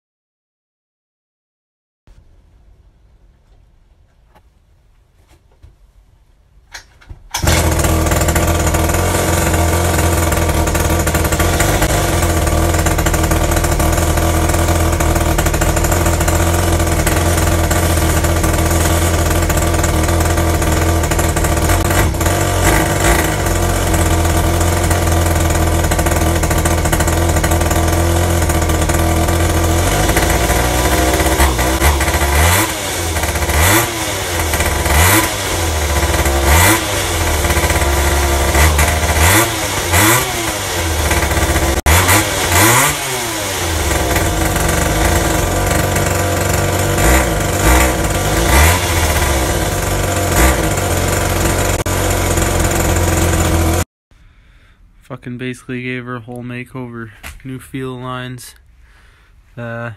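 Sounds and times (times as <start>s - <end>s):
engine pull-start: 6.7s - 53.8s
two-stroke engine running and revving: 7.4s - 53.9s.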